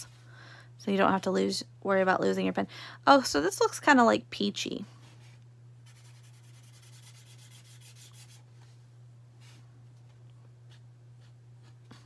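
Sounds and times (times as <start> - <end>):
steady low hum: 0.0 - 12.0
marker scribbling on tag: 5.9 - 8.4.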